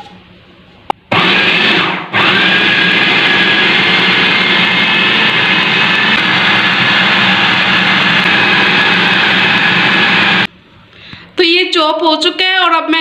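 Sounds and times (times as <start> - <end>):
food processor motor whining: 1.1 - 10.5.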